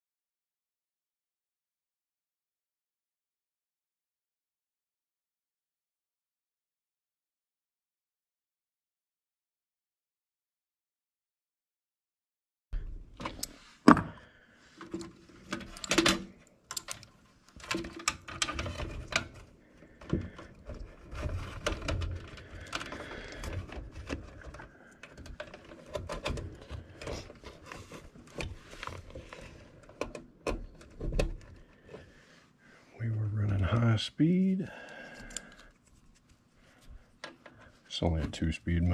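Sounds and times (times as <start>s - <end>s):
wires rustling and clicking: 13.0s - 32.2s, 34.7s - 38.9s.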